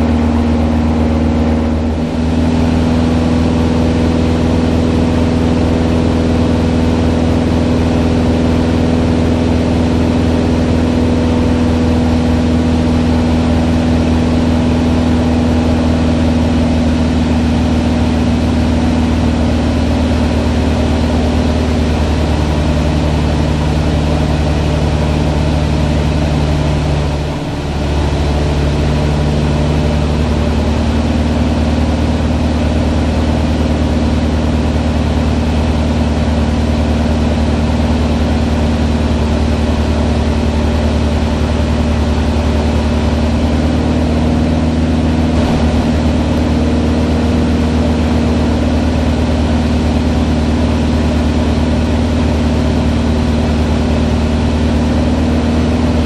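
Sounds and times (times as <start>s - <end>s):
propeller plane engine drone: 0.0s - 56.0s.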